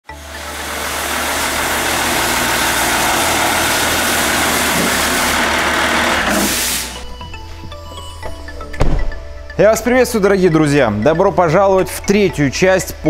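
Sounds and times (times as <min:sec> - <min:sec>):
diesel engine idling: 0:00.1 - 0:07.0.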